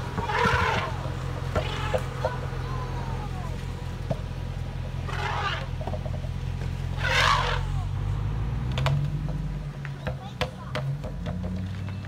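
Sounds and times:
elephant calves trumpeting: 0:00.0 - 0:08.2
low background hum: 0:00.0 - 0:10.3.

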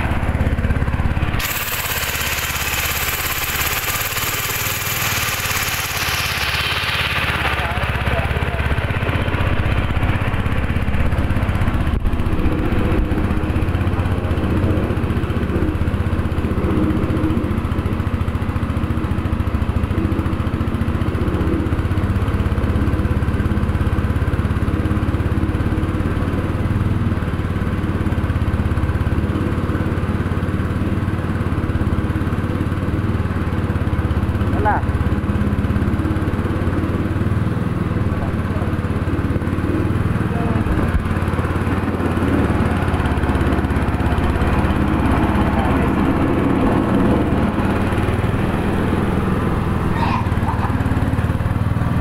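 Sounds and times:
spice grinding mill running: 0:00.0 - 0:09.6, 0:38.4 - 0:52.0.

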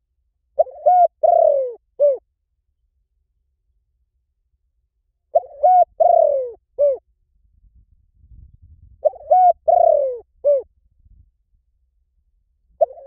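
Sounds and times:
dove cooing: 0:00.6 - 0:02.2, 0:05.3 - 0:07.0, 0:09.0 - 0:10.7, 0:12.8 - 0:13.0.

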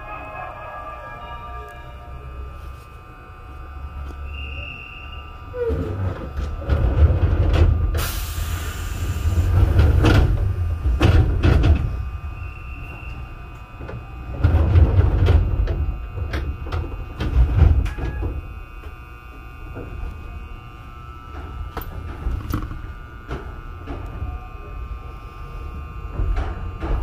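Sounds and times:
air hissing: 0:07.9 - 0:10.9.

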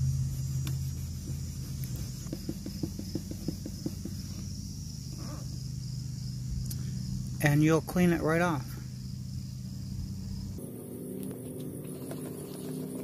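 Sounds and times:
steel wool scrubbing plastic: 0:00.0 - 0:04.5
steady low hum: 0:00.0 - 0:13.0.

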